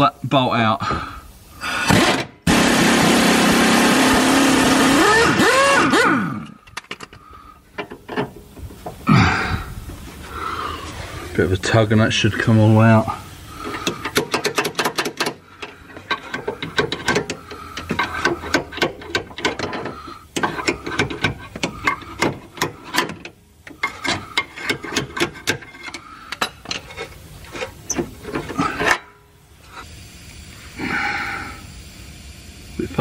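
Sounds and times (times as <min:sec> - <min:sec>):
metal bolt clicking and rasping: 0:13.6 - 0:29.2.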